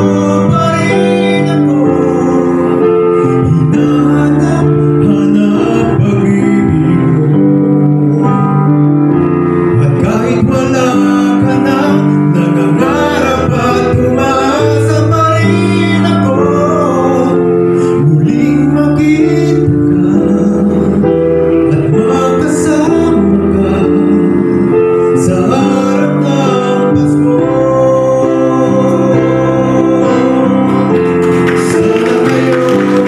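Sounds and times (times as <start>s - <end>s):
instrumental accompaniment: 0.0s - 33.0s
man singing into microphone: 0.0s - 33.0s.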